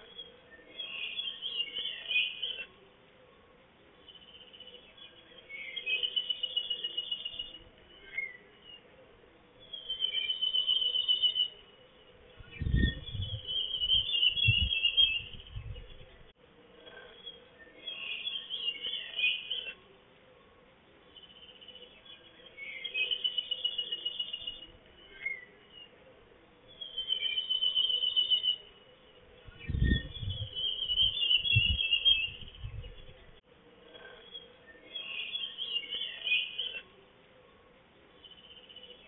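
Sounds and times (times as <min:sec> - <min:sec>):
songbird singing trilled phrases: 0:00.0 - 0:02.7, 0:04.0 - 0:08.8, 0:09.6 - 0:16.3, 0:17.1 - 0:19.8, 0:21.1 - 0:25.9, 0:26.7 - 0:36.9
low rumbles: 0:12.4 - 0:13.6, 0:29.4 - 0:30.7.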